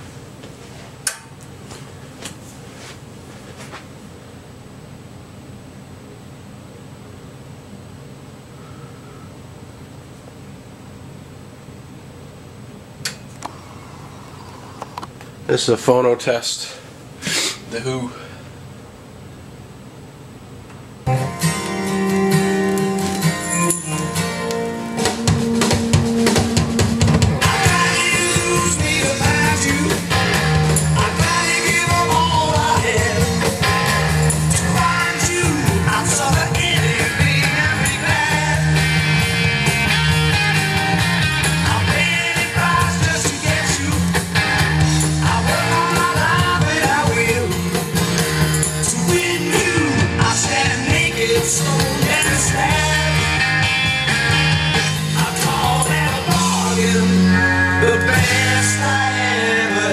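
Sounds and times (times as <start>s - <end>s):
rock song from vinyl record: 21.1s - 59.9s.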